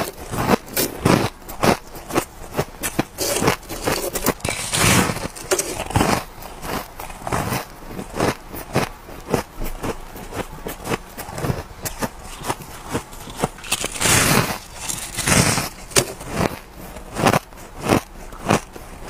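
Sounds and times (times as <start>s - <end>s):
shaved ice crunching: 0.0s - 19.0s.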